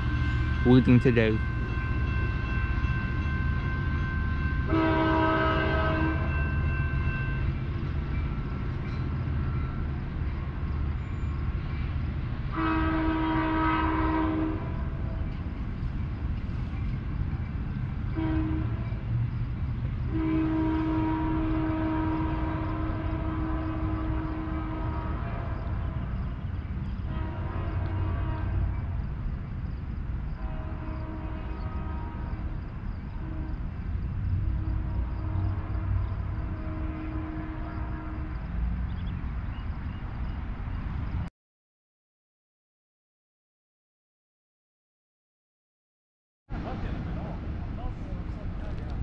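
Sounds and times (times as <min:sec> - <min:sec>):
locomotive horn: 0:00.0 - 0:07.5, 0:12.5 - 0:15.3, 0:18.1 - 0:19.1, 0:20.1 - 0:26.2, 0:27.0 - 0:29.0, 0:30.4 - 0:32.6, 0:33.2 - 0:33.8, 0:34.4 - 0:38.9
train rumble: 0:00.0 - 0:41.3, 0:46.5 - 0:49.0.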